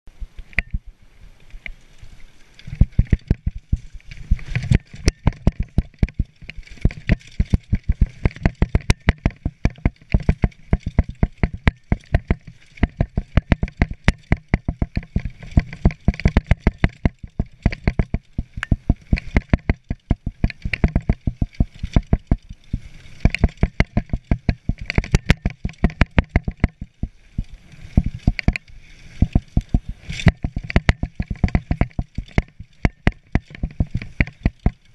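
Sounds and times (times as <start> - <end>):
bike clattering over rough ground: 1.8 - 34.9
wind hiss: 26.8 - 30.3.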